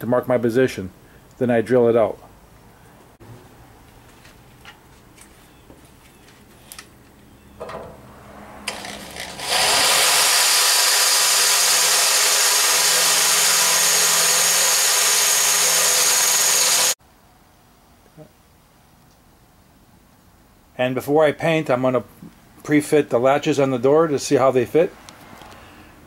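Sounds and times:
electric drill boring sheet metal: 8.6 - 17.0.

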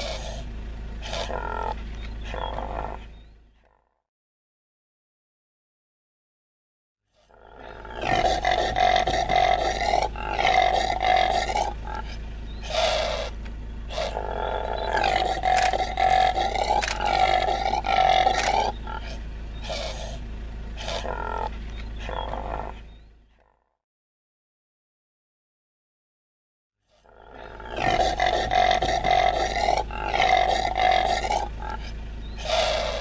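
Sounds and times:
impala roaring: 0.0 - 3.7, 7.2 - 23.5, 26.9 - 33.0.

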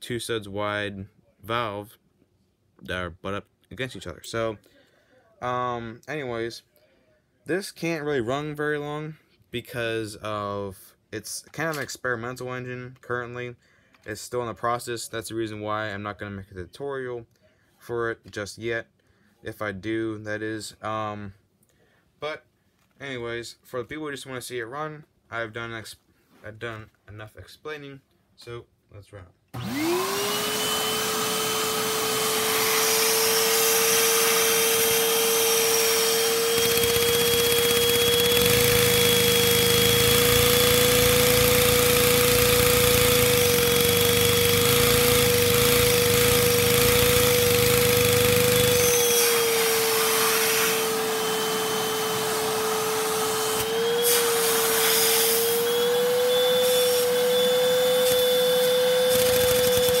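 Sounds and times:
vacuum cleaner whining: 29.5 - 60.0.

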